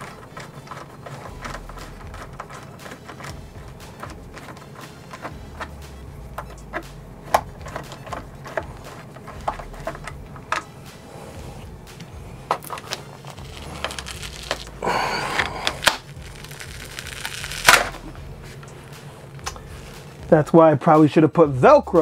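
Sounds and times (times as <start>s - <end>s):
foam pad ripping off: 12.7s - 18.1s.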